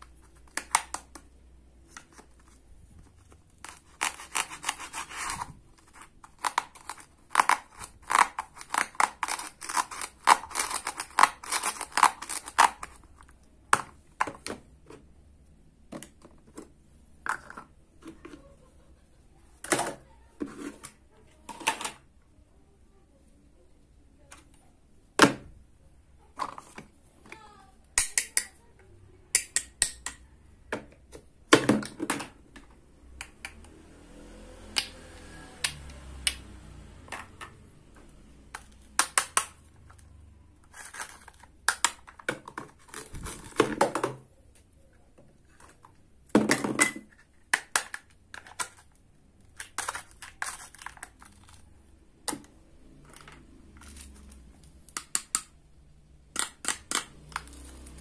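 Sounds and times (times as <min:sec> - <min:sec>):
plastic toys clicking: 0:03.6 - 0:14.5, 0:26.4 - 0:28.6, 0:38.5 - 0:40.0, 0:40.7 - 0:44.2, 0:45.5 - 0:55.6, 0:56.3 - 0:58.0.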